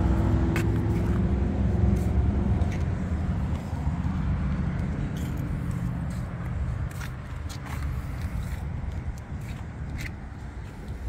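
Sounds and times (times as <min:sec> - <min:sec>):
road and tyre noise inside car: 0:00.0 - 0:11.0.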